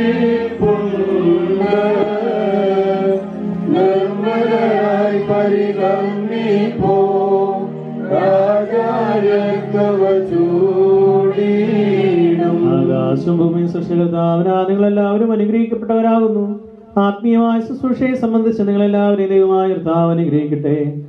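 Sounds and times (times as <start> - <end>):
man singing a chant: 12.4 - 17.2.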